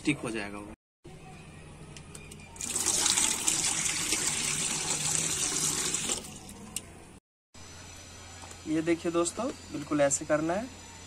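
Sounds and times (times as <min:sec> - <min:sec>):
water pouring into steel bowl: 0:02.6 - 0:06.6.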